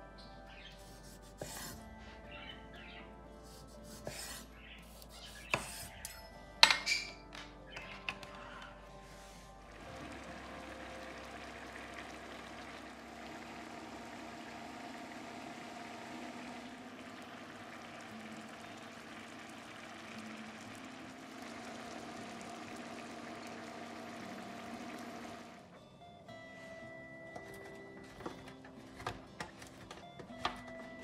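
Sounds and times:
soft background music: 0.0 - 31.0
food bubbling and hissing on stove: 9.1 - 25.6.

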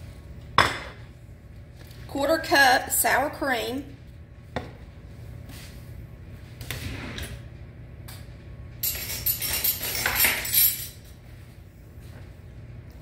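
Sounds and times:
kitchen utensils clattering: 8.8 - 11.2.

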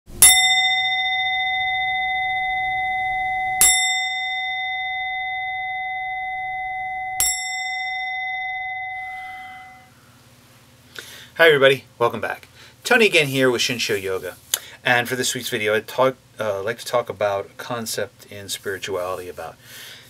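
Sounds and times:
singing bowl ringing: 0.1 - 10.0.

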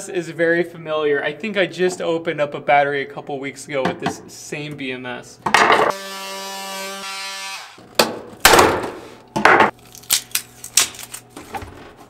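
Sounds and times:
power tool cutting plastic: 5.9 - 7.8.

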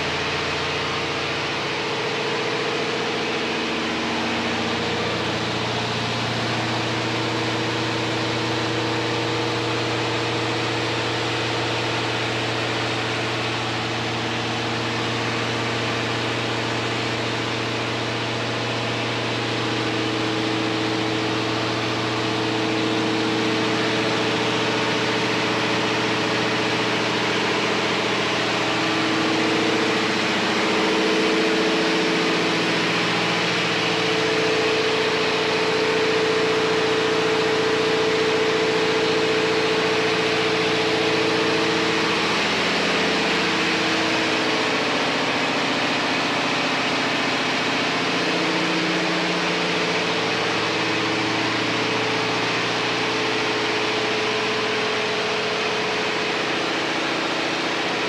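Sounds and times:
engine-room machinery humming: 0.0 - 58.0.

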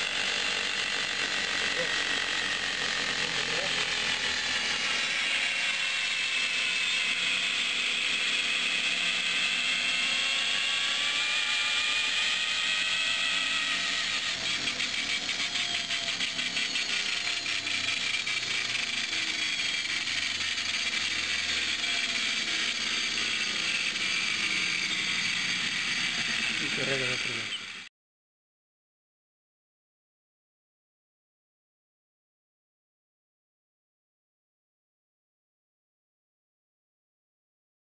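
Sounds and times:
generator motor whine: 0.0 - 27.9.

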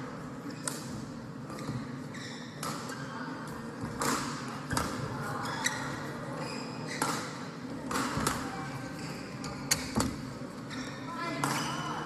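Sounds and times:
shoes squeaking on court floor: 0.4 - 12.0
rackets hitting shuttlecock: 3.9 - 5.0, 6.9 - 8.5, 11.4 - 11.7.

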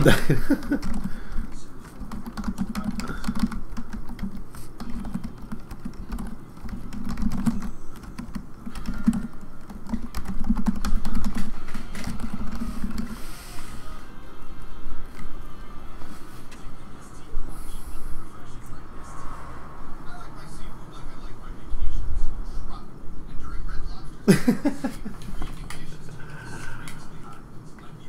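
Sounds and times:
computer keyboard typing: 0.3 - 13.2.

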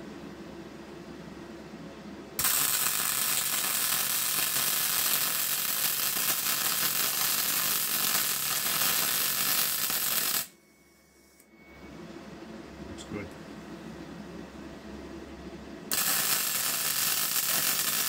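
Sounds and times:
welding arc buzzing: 2.4 - 10.5, 15.9 - 18.0.

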